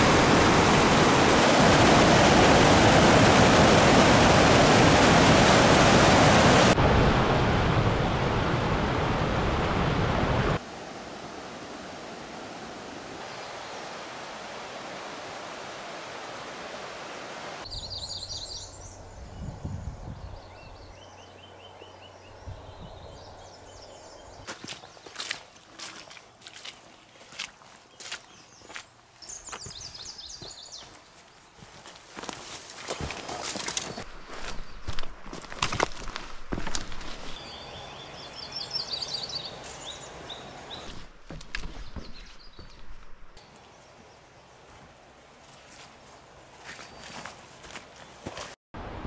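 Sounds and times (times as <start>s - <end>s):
waterfall rushing over rock: 0.0s - 13.3s.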